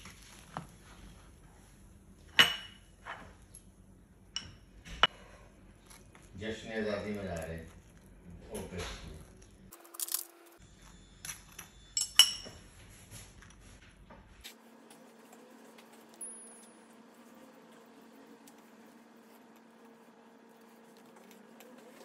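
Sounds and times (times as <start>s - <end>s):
spoon clinking on ceramic bowl: 11.2s - 12.5s.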